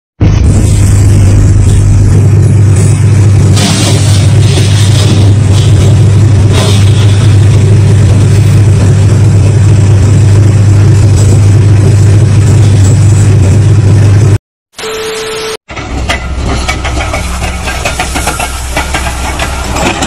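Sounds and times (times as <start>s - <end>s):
diesel truck engine running: 0.2s - 14.4s.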